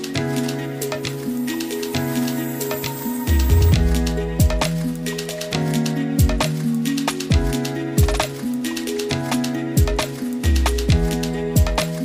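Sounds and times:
melody of held notes: 0.0 - 10.6
deep kick drum: 3.4 - 4.7.

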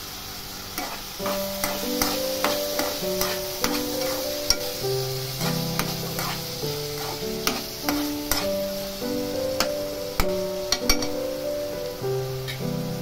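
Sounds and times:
light sizzle: 0.0 - 13.0
spatula scraping metal pan: 0.8 - 4.7, 5.3 - 8.6
background music with held notes: 1.2 - 13.0.

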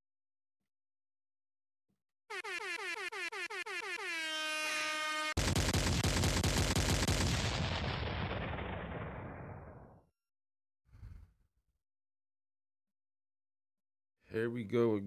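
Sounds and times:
air horn blasts: 2.3 - 5.4
rapid-fire rattle: 5.4 - 9.7.

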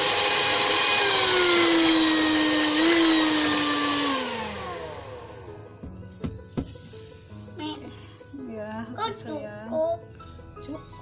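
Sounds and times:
electric hand mixer whirring: 0.0 - 5.8.

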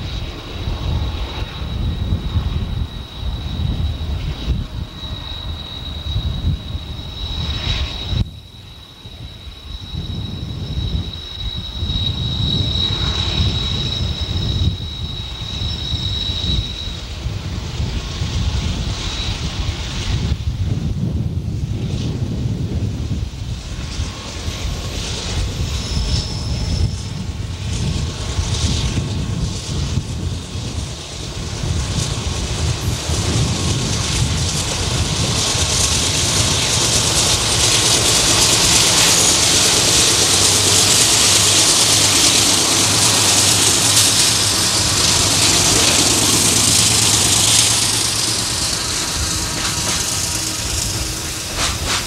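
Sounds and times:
wind buffeting microphone: 0.0 - 8.5, 9.1 - 52.0
train cars passing: 0.0 - 20.9, 22.6 - 52.0
diesel locomotives rumbling: 0.0 - 52.0.

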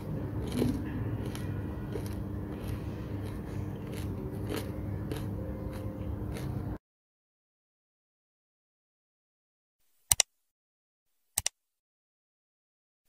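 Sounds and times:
fried pastry crackling and crunching: 0.0 - 6.8
steady low hum: 0.0 - 6.8.

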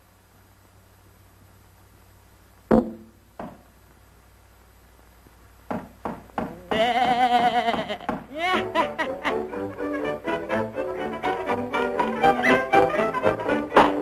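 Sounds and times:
optical track hiss and hum: 0.0 - 14.0
sharp knocks: 2.7 - 3.6, 5.7 - 6.7, 7.7 - 8.3
old cartoon soundtrack: 8.2 - 14.0.

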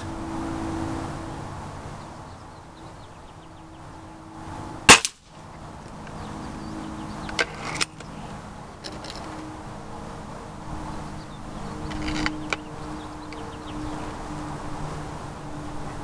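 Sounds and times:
air rifle shot: 4.9 - 5.3.

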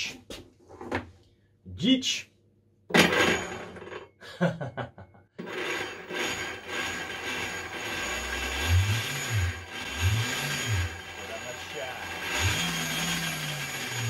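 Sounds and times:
electric motor whining: 5.4 - 14.0.

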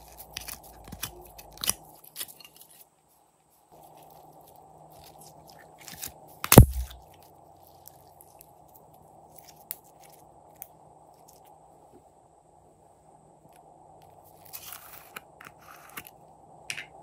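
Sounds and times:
loud thump: 6.5 - 7.0.

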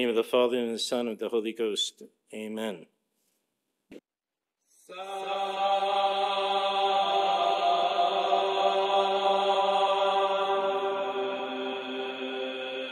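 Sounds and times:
sacred chant music: 4.7 - 12.9.

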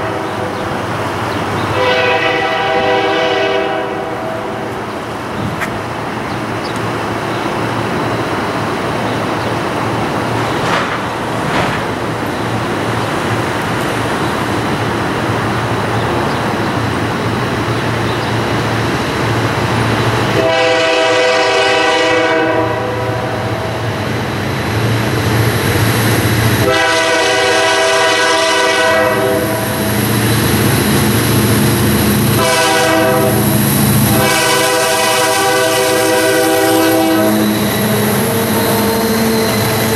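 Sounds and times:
locomotive horn blasts: 0.0 - 0.5, 1.7 - 4.8, 20.3 - 23.7, 26.6 - 29.8, 32.3 - 38.8
diesel locomotive engine rumble: 0.0 - 39.9.

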